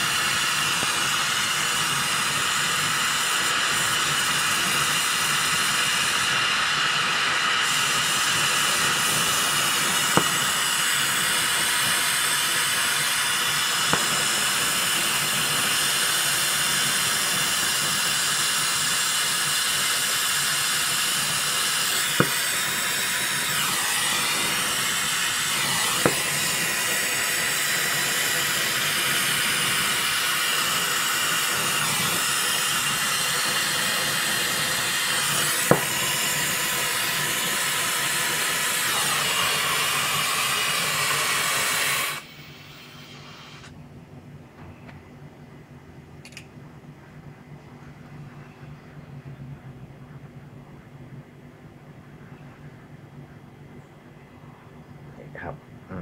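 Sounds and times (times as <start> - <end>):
torch flame hissing: 0.0 - 43.7.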